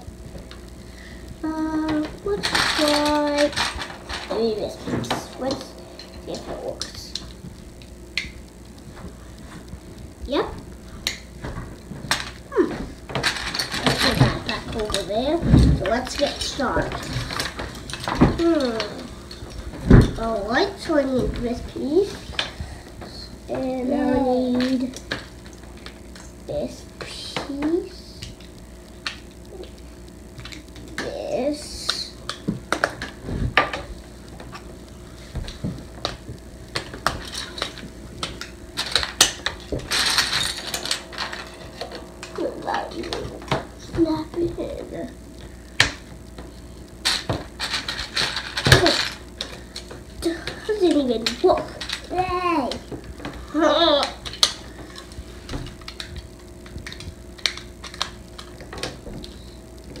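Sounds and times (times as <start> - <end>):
plastic bricks clicking and clattering: 1.9 - 4.4, 13.1 - 15.1, 36.8 - 42.4, 47.0 - 49.9.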